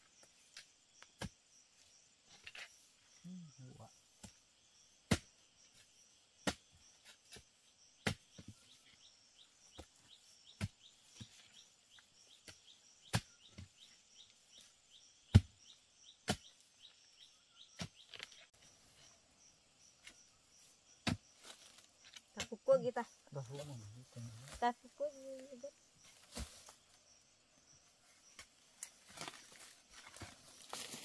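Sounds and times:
insects chirping: 0.0s - 31.0s
digging tool chopping: 5.1s - 5.4s, 6.4s - 7.4s, 8.0s - 8.5s, 12.4s - 13.7s, 15.3s - 15.6s, 16.2s - 16.6s, 21.0s - 21.8s, 26.2s - 26.7s.

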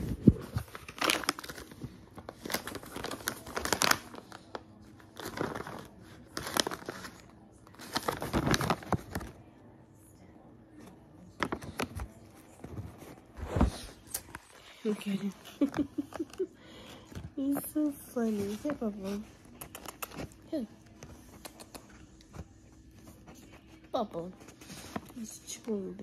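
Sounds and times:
plastic pouch crinkling: 0.6s - 9.3s.

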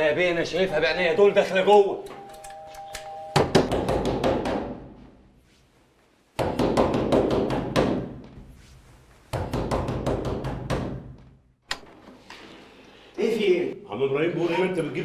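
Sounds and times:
pounding on wooden door: 3.4s - 5.0s, 6.4s - 8.2s, 9.3s - 11.3s.

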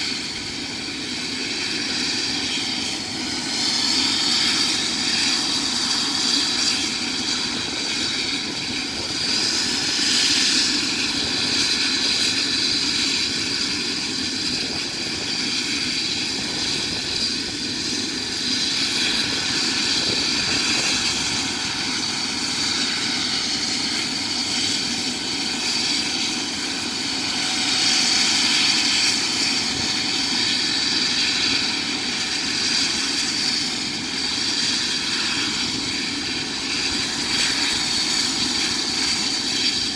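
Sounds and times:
helicopter turbine engine whine: 0.0s - 39.9s.

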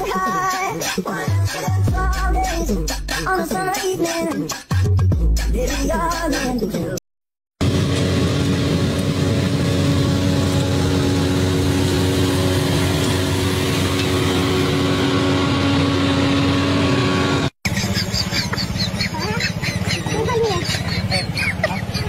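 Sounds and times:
sweeper engine running: 7.6s - 22.0s.

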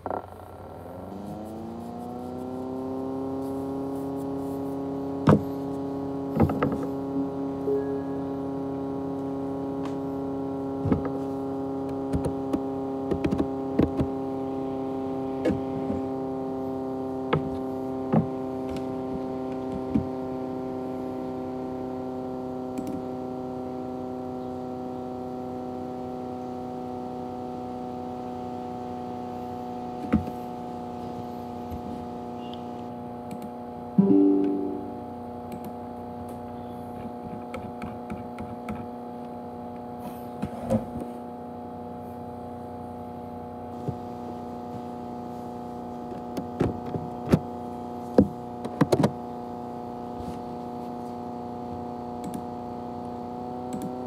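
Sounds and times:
held chord: 7.7s - 8.4s, 34.0s - 35.4s.

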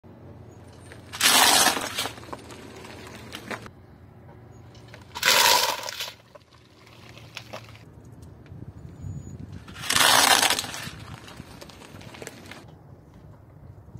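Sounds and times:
small cracks: 0.8s - 3.7s, 4.8s - 7.9s, 9.7s - 12.7s
tyre crushing pasta on plastic plate: 1.1s - 3.6s, 5.1s - 7.8s, 9.7s - 12.6s.

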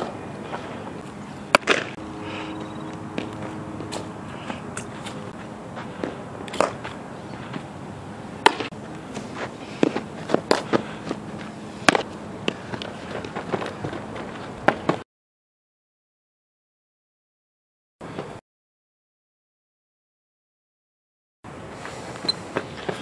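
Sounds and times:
softball hitting leather gloves: 1.5s - 1.9s
footsteps scuffing on dirt: 1.5s - 7.7s.

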